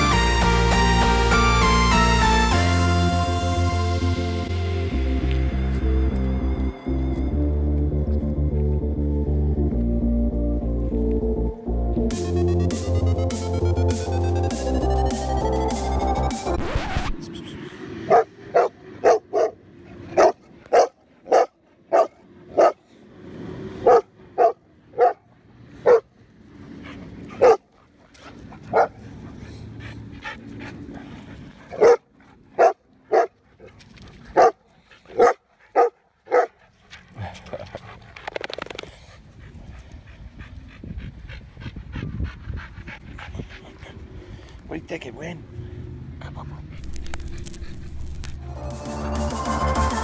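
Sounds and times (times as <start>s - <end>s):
dog barking deeply: 18.1s - 22.8s, 27.4s - 27.6s, 31.7s - 32.0s, 32.6s - 33.3s, 35.2s - 36.5s.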